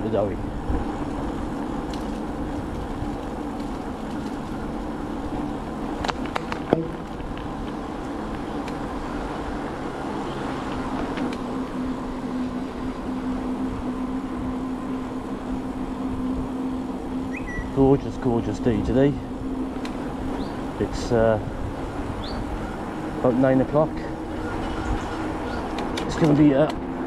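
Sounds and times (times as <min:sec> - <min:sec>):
low rumble with hum: 0:00.0 - 0:27.0.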